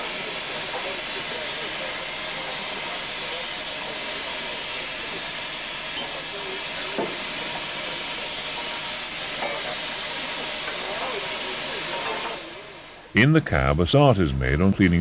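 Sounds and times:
steam hissing from locomotive: 0.0s - 13.2s.

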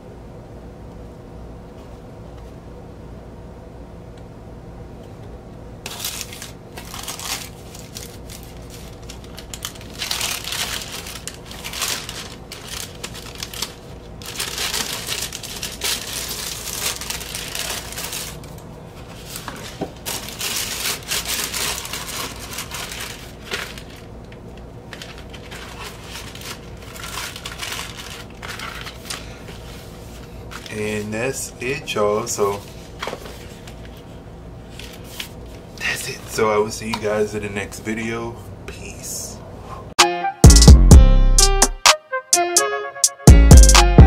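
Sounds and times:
plastic record sleeve crinkling: 5.8s - 31.3s, 32.4s - 35.8s.

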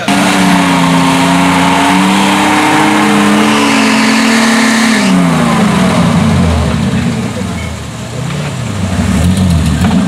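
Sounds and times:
engine revving hard: 0.0s - 7.4s.

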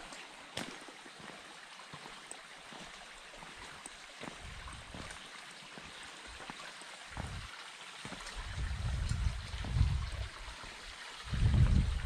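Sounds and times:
stream running over rock: 0.0s - 12.0s
soft low thumps: 7.2s - 7.5s, 8.5s - 10.3s.

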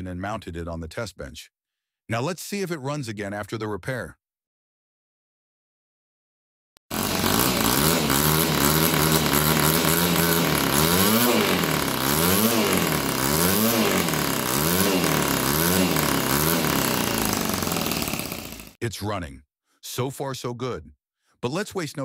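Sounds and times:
model engine revving: 6.9s - 18.8s.

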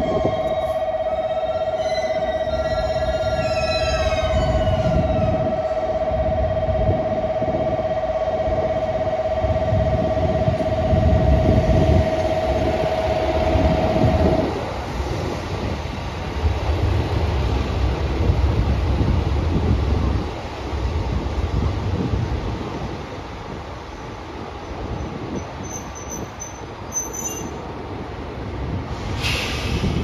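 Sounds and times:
steady electronic tone: 0.0s - 14.9s
diesel railcar pulling in: 0.0s - 30.0s.

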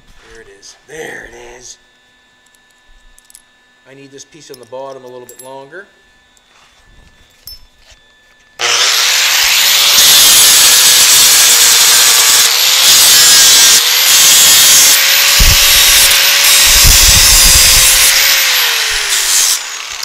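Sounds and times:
angle grinder grinding steel: 7.7s - 20.0s.

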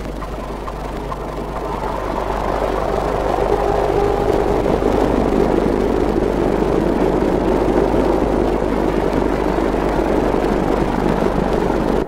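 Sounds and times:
low hum: 0.0s - 12.0s
mechanical running noise: 0.0s - 12.0s.

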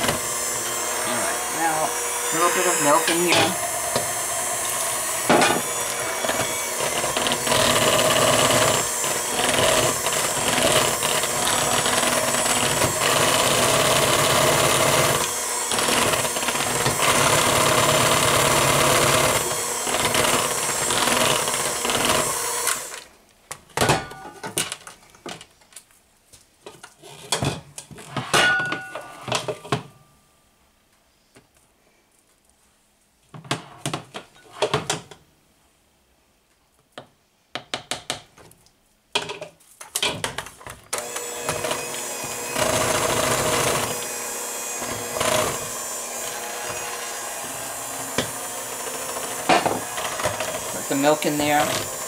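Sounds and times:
electric hand mixer running: 0.0s - 23.1s, 41.0s - 52.0s.

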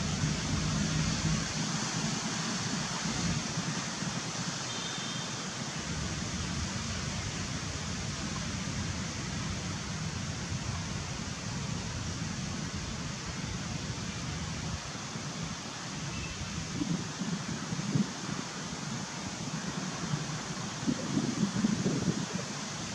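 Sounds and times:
outdoor background hiss: 0.0s - 22.9s.

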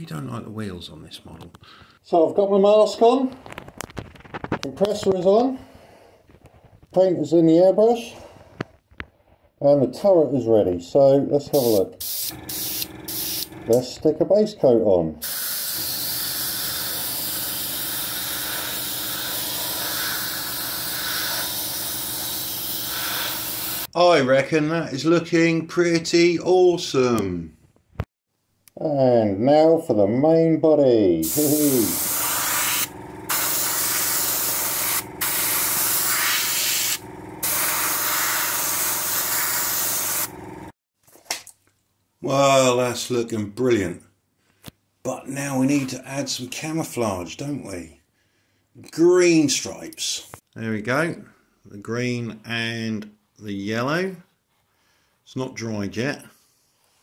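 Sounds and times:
airbrush spraying hiss: 11.6s - 13.5s, 15.2s - 23.9s, 31.2s - 40.3s
compressor hum: 12.0s - 14.0s, 31.2s - 40.7s.

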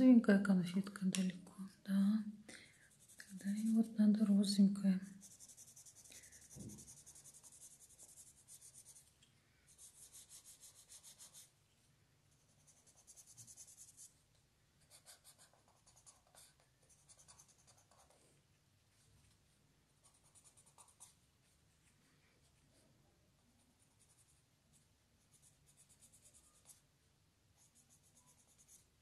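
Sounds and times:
pencil shading on paper: 2.9s - 3.9s, 5.1s - 9.0s, 9.7s - 11.5s, 12.4s - 14.1s, 14.9s - 18.2s, 27.6s - 28.8s.

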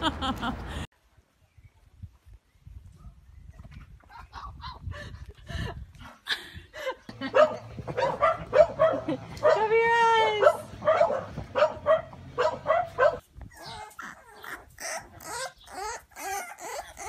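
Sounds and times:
puppies yipping and whining: 10.5s - 17.0s.

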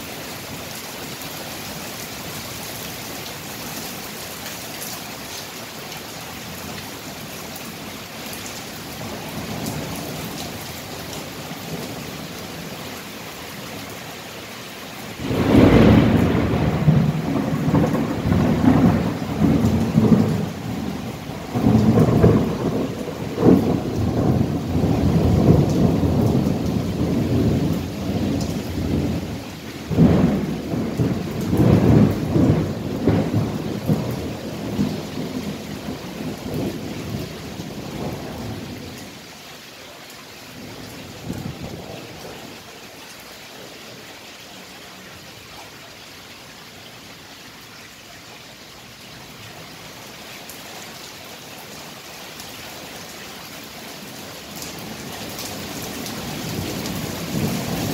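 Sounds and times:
steady rain: 0.0s - 57.9s
thunderclap rolling rumble: 15.2s - 38.8s.

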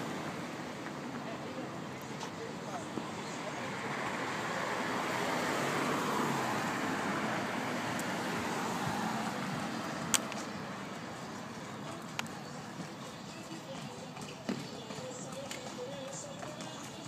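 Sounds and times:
car driving by: 2.7s - 13.5s.

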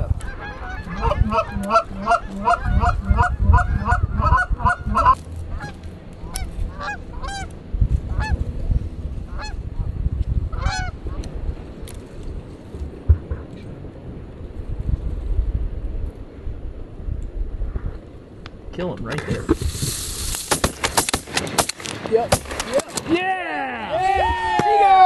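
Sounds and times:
geese honking in flight: 0.2s - 7.5s, 8.1s - 8.4s, 9.3s - 9.6s, 10.5s - 11.2s.

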